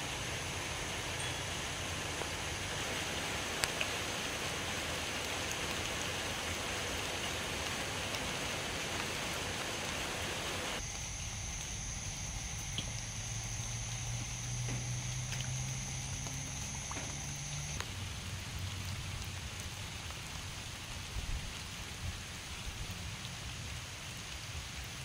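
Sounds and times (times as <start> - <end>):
water hissing: 0.0 - 17.8.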